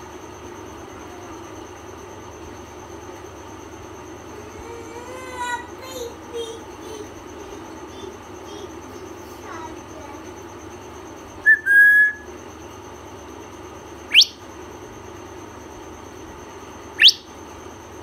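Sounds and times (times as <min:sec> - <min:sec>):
parrot whistling: 0:11.4 - 0:12.3, 0:14.1 - 0:14.4, 0:17.0 - 0:17.3.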